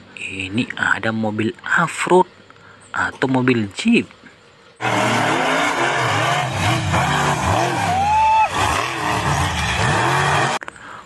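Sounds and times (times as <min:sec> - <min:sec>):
truck engines revving hard: 0:04.8 - 0:10.7.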